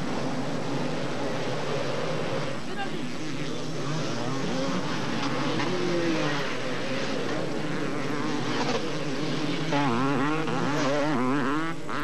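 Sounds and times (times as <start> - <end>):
motocross bikes revving: 0.0 - 12.0.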